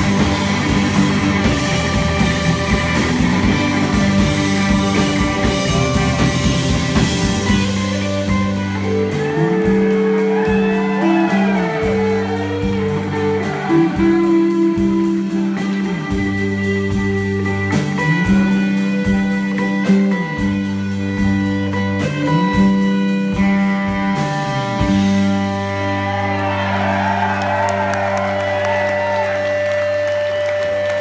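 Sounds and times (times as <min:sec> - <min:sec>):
audience applauding and cheering: 0:00.0 - 0:17.1, 0:25.4 - 0:31.0
drums hitting: 0:00.0 - 0:21.6
live rock band playing: 0:00.0 - 0:31.0.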